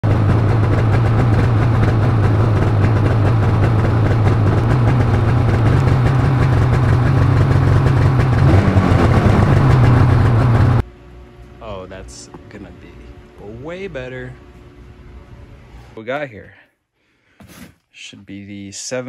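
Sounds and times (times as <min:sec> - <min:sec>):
snowmobile engine idling: 0:00.0 - 0:10.8.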